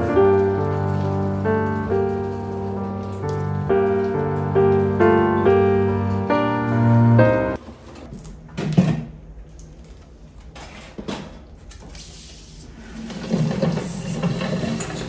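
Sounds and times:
glass tank scraping on tile floor: 0:12.8 - 0:15.0.

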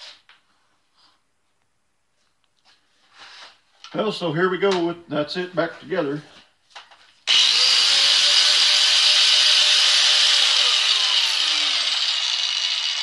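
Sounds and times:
angle grinder whirring: 0:07.2 - 0:13.0.

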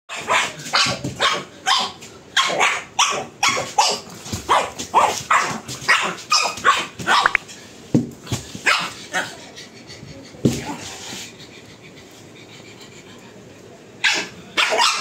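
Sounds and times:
dog barking: 0:00.1 - 0:07.4, 0:14.0 - 0:15.0.

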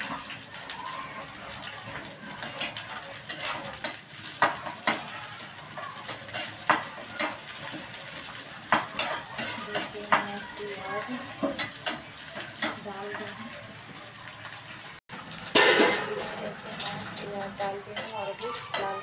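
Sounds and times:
onion sizzling in hot oil: 0:00.0 - 0:19.0
spatula scraping and clinking pan: 0:01.8 - 0:13.4, 0:15.5 - 0:19.0.

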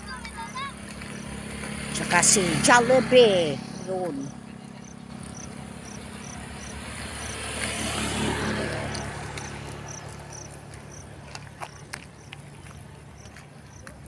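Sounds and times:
crickets chirping: 0:02.3 - 0:07.5, 0:09.4 - 0:13.8.

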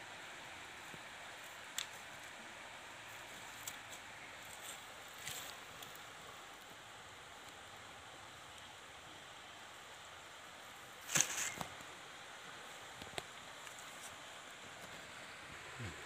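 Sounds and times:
faint outdoor ambience by water: 0:00.0 - 0:16.0
soft clicks and rustles: 0:03.1 - 0:06.1, 0:12.8 - 0:15.1.

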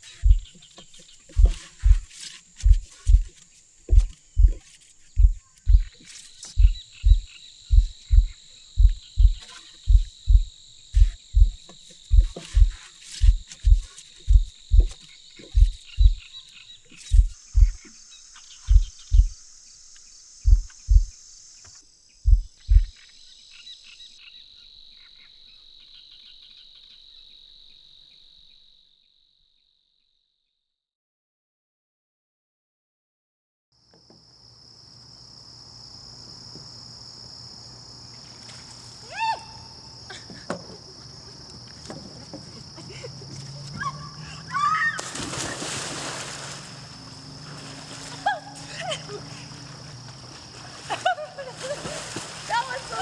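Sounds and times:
high-pitched insect chorus: 0:00.0 - 0:29.5, 0:34.3 - 0:53.0
high-heeled footsteps on wooden dock: 0:00.2 - 0:00.6, 0:01.3 - 0:16.2, 0:17.1 - 0:17.8, 0:18.7 - 0:19.4, 0:20.5 - 0:21.1, 0:22.3 - 0:22.9.

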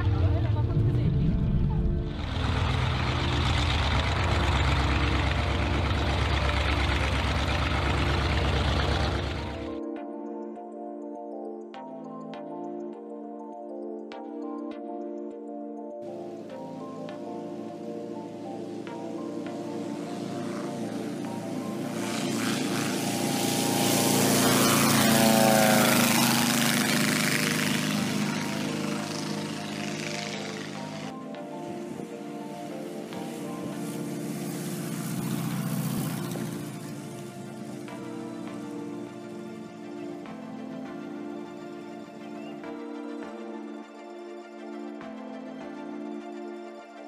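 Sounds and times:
propeller engine running: 0:00.0 - 0:09.8, 0:16.0 - 0:43.8.

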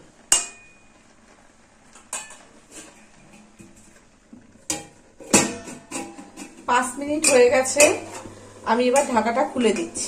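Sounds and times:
steel lid clattering onto pan: 0:04.7 - 0:08.3.

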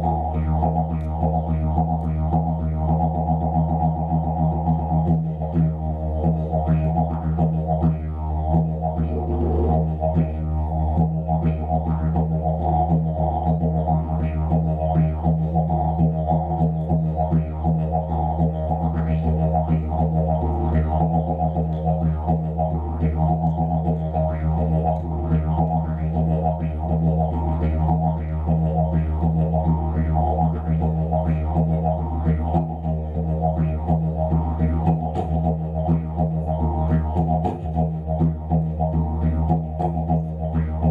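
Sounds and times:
didgeridoo drone: 0:00.0 - 0:40.9.

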